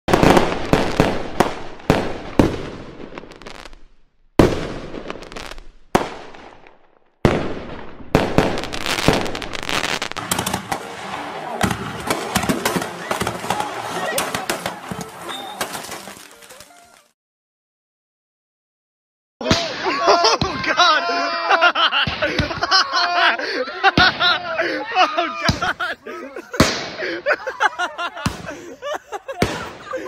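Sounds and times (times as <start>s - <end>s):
rapid firework pops and crackling: 0.1s - 3.8s, 4.4s - 17.1s, 26.6s - 27.0s
firework shells bursting: 8.2s - 16.7s.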